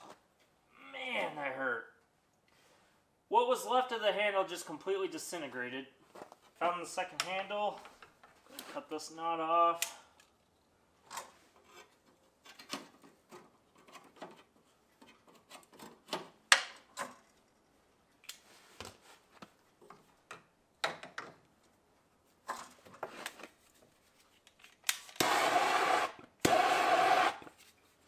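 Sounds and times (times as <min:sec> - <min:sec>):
handling clicks and scraping: 0:22.4 - 0:25.2.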